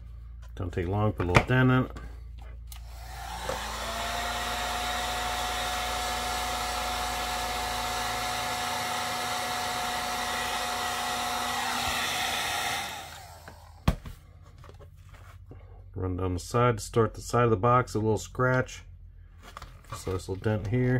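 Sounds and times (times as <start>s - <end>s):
heat gun hum and air rush: 2.7s - 13.9s.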